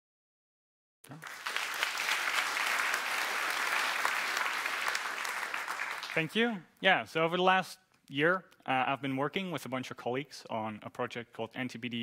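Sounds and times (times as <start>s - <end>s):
audience applauding: 1.1s - 6.5s.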